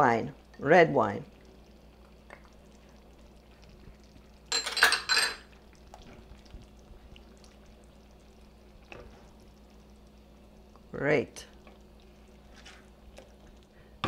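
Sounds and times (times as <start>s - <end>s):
wooden spoon stirring thick sauce: 5.5s - 9.9s, 10.7s - 13.8s.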